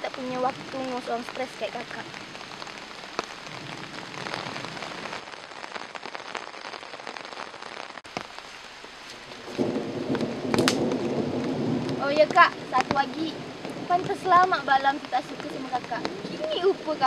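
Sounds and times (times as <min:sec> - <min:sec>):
light crackles: 0:00.0 - 0:17.0
rain-like hiss: 0:00.0 - 0:17.0.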